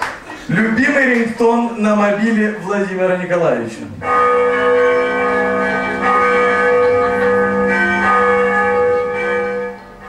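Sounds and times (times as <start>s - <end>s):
bell ringtone over sound system: 4.0s - 10.0s.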